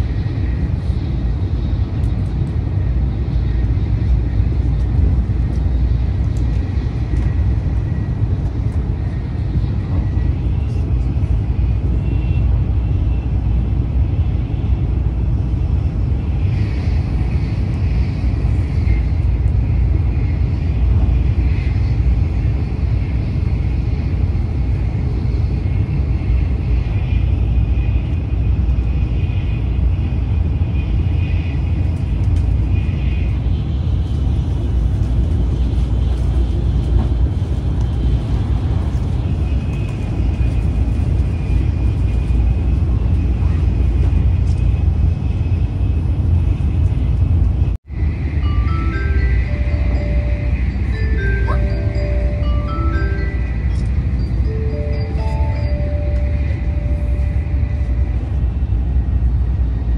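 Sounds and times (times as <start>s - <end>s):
train wheels rumbling on rails: 0.0s - 59.9s
faint high whine: 48.0s - 59.0s.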